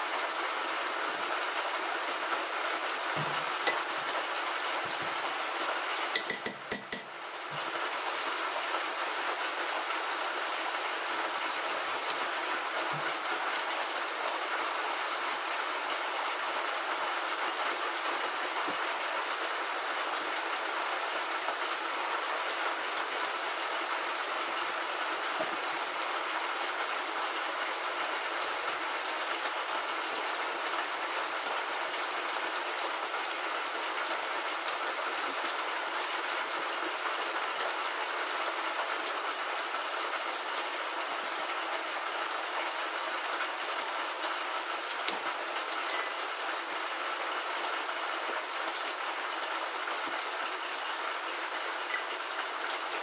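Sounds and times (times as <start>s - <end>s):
torque wrench clicking: 6.2s - 7.1s.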